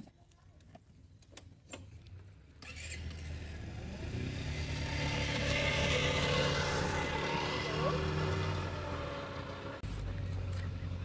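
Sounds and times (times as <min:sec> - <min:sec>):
motor scooter engine humming: 0:02.6 - 0:11.0.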